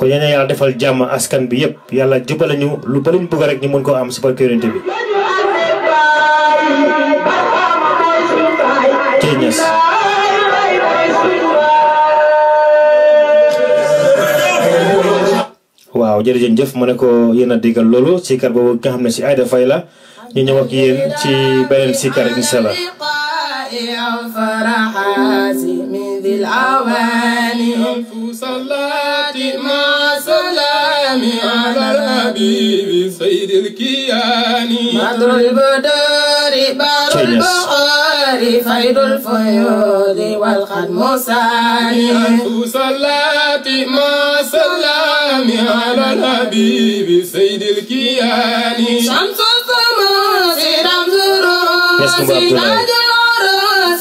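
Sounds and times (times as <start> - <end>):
voice chanting a wavering melody: 25.0 - 28.0, 37.1 - 37.6, 52.0 - 53.0
steady held low note: 25.1 - 27.1.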